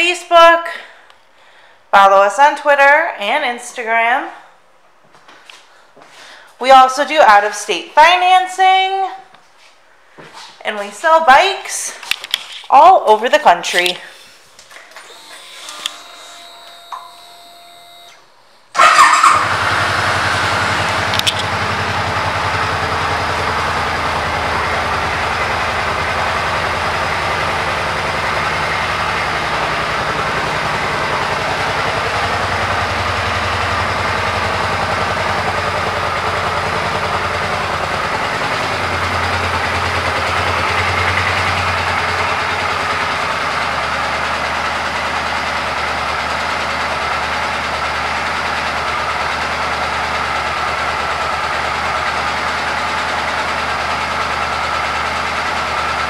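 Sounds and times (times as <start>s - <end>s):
motorcycle engine idling: 18.7s - 56.0s.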